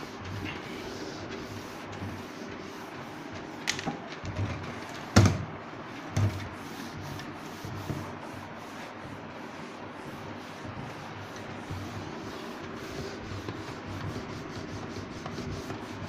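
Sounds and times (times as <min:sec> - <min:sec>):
cloth rubbing on whiteboard: 0:00.0 - 0:04.8, 0:05.9 - 0:16.0
knocks on board: 0:05.2 - 0:05.5.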